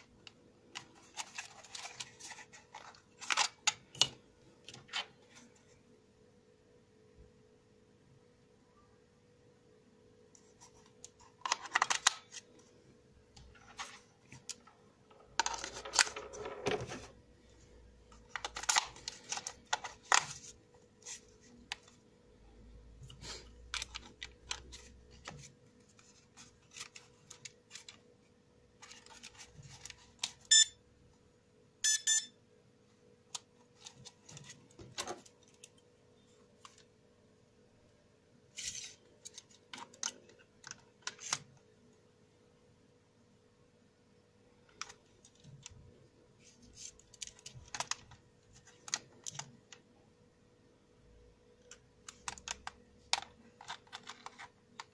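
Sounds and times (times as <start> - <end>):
faint steady hum: 0.0 - 54.9
batteries and plastic clicking: 0.2 - 5.1, 18.1 - 22.0, 23.0 - 25.5, 38.6 - 41.6, 46.8 - 49.8, 51.6 - 54.9.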